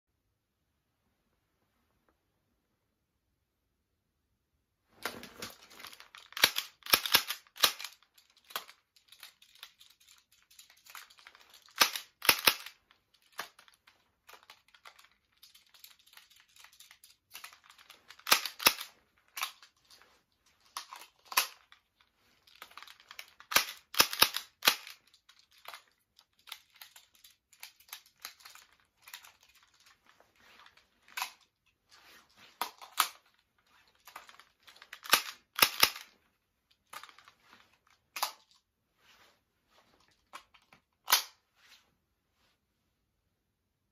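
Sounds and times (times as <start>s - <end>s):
plastic toy pistol clacking: 6.2s - 13.6s, 15.5s - 19.7s, 22.7s - 25.8s, 34.1s - 36.1s, 41.1s - 41.4s.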